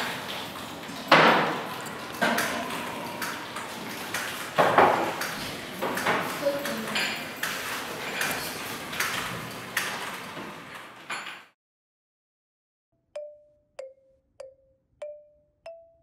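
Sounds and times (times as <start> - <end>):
cups and saucers clinking: 5.9 - 7.4.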